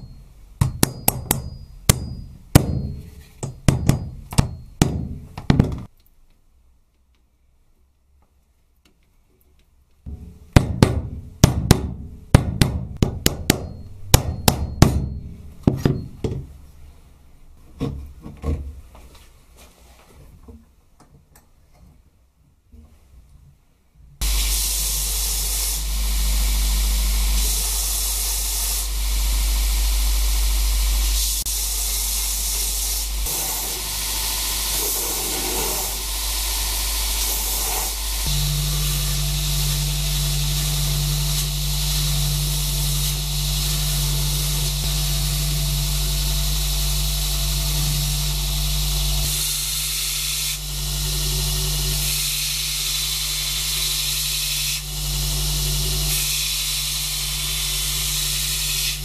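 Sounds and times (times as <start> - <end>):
low hum: 24.2 - 49.4
belt grinder sanding wood: 24.2 - 59.0.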